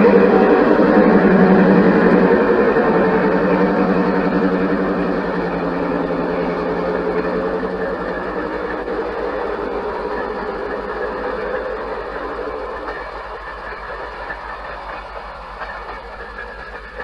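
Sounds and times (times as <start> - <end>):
locomotive engine hum: 0.0 - 17.0
train cars running on rails: 0.0 - 17.0.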